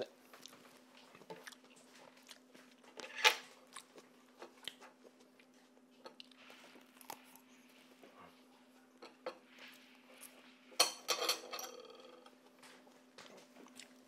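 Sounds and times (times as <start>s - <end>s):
forks scraping on plates: 10.8s - 12.2s
cutlery clink: 10.8s - 12.3s.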